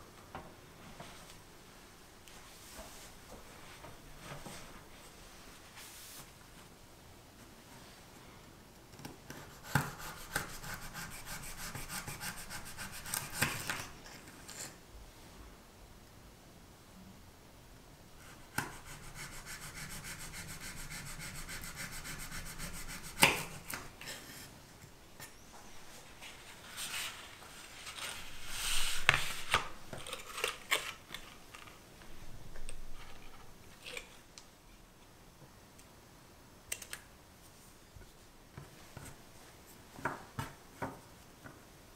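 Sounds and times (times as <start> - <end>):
knife sawing through pastry: 9.4 - 13.5.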